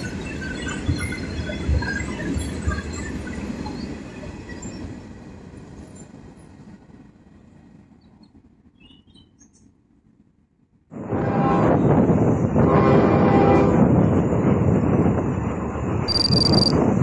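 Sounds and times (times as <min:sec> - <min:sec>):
train squeaks and clinks: 0:00.0 - 0:05.1, 0:16.1 - 0:16.8.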